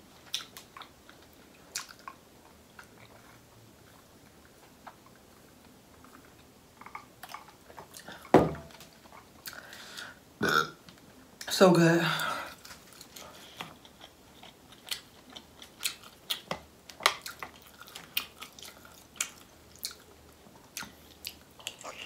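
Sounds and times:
wet chewing and lip smacks: 0:00.2 - 0:02.2, 0:17.1 - 0:22.0
loud thud: 0:08.3 - 0:08.7.

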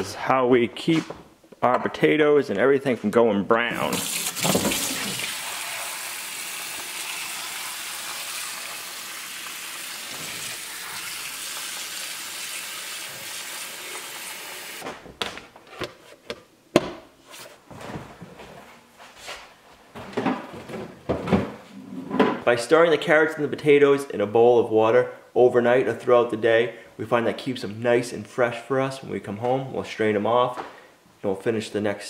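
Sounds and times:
faucet running into bowl: 0:03.8 - 0:14.8.

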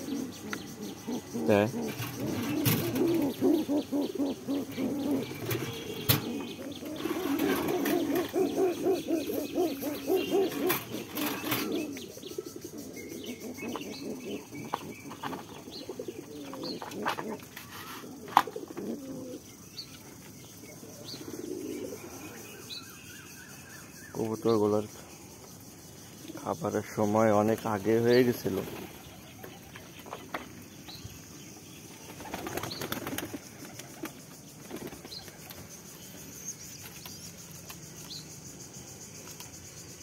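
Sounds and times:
pigeons cooing: 0:00.0 - 0:22.7, 0:32.1 - 0:35.5.

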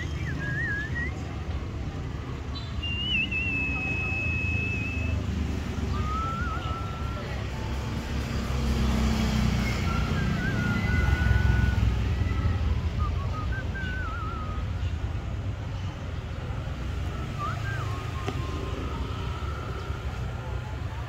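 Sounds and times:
wavering bird whistles: 0:00.0 - 0:01.5, 0:02.5 - 0:07.6, 0:09.5 - 0:15.0, 0:17.1 - 0:20.4
low rumble of street traffic: 0:00.0 - 0:21.0.

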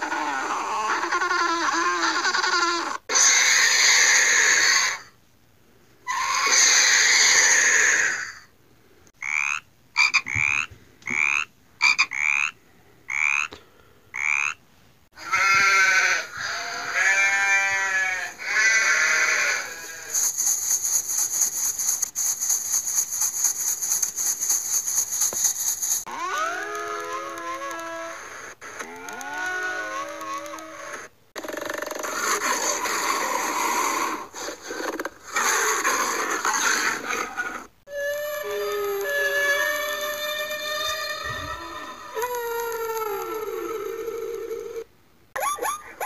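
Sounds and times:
harsh screeching cries: 0:00.0 - 0:05.2, 0:06.1 - 0:08.5, 0:15.2 - 0:34.6, 0:35.3 - 0:44.8
frog croaks: 0:09.2 - 0:14.6
sheep bleating: 0:15.2 - 0:20.0
crackling hiss: 0:17.8 - 0:44.9.

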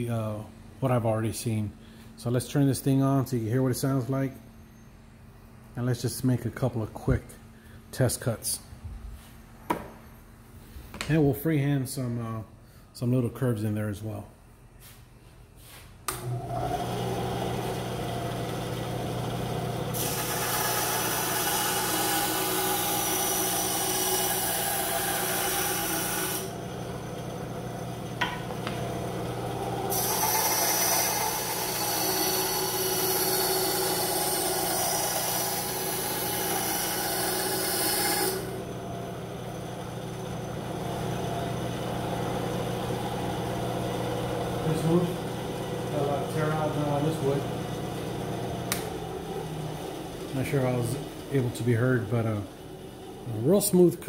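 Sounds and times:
bandsaw motor humming: 0:16.1 - 0:53.9
saw blade cutting wood: 0:20.0 - 0:26.6, 0:29.9 - 0:38.6.

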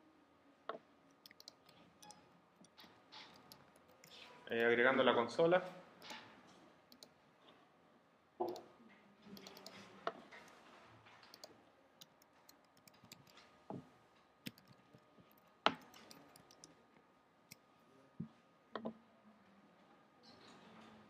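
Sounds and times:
mouse and keyboard clicks: 0:01.2 - 0:04.7, 0:06.0 - 0:06.3, 0:09.3 - 0:10.6, 0:11.2 - 0:13.5, 0:14.5 - 0:16.7.

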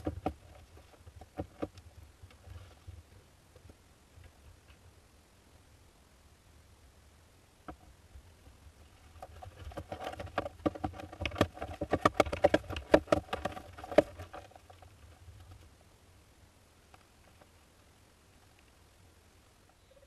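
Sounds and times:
chicks scratching and tapping: 0:00.0 - 0:04.8, 0:08.9 - 0:15.7.

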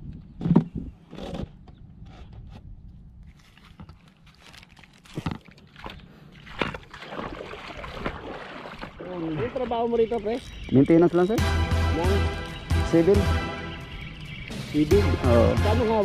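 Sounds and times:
wind rumble on microphone: 0:00.0 - 0:03.5
fishing gear knocking and rustling: 0:03.2 - 0:06.9.

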